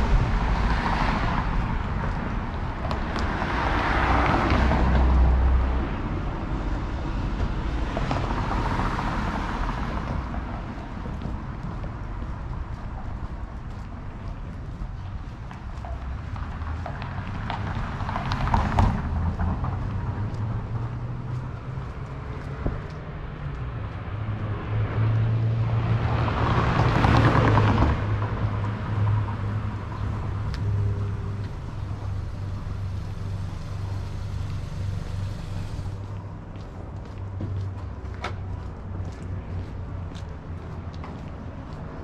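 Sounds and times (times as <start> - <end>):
car passing: 0.0 - 42.0
faint footsteps: 9.6 - 25.3, 28.4 - 42.0.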